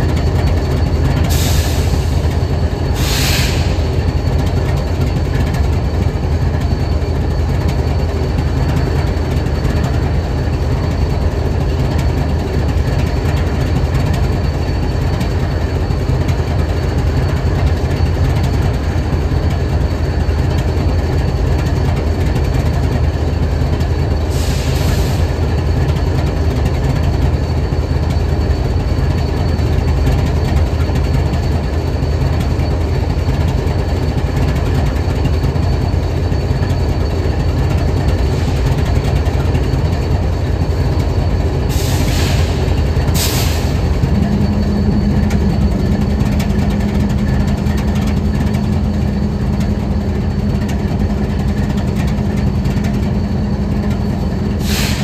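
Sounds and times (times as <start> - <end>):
locomotive engine idling: 0.0 - 55.0
steady higher hum: 35.7 - 55.0
brief hisses: 54.6 - 55.0.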